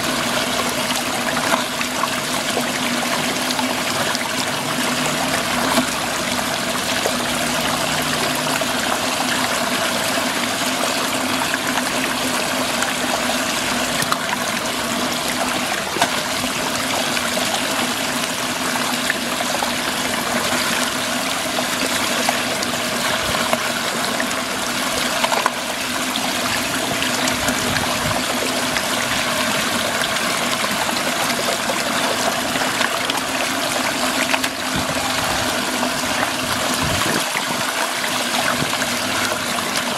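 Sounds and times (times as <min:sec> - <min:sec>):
steady hum: 0:00.0 - 0:39.9
water swirling down drain: 0:00.0 - 0:39.9.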